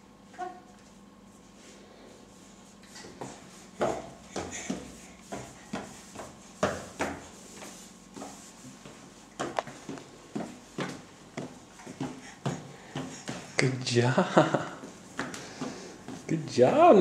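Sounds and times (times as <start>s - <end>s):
toddler footsteps on hard floor: 3.0s - 13.9s, 14.5s - 17.0s.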